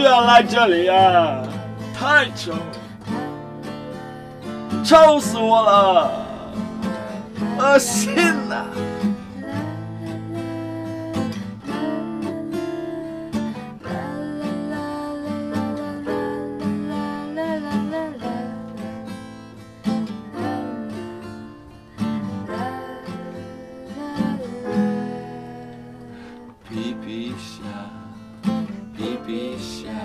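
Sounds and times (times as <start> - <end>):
wordless singing: 0.0 - 13.1, 22.5 - 28.0, 29.0 - 30.0
acoustic guitar strummed chords: 0.0 - 30.0.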